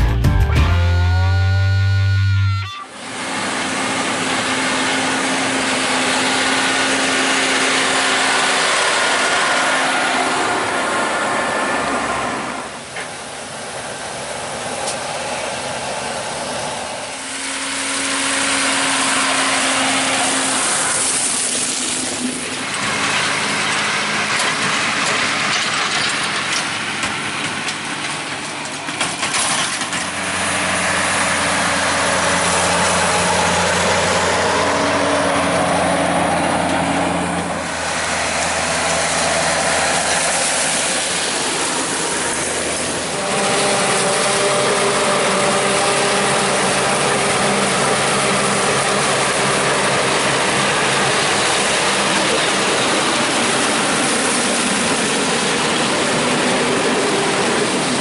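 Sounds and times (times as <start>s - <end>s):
tractor engines: 0.0s - 58.0s
forage harvester chopping corn: 17.9s - 35.0s, 37.7s - 58.0s.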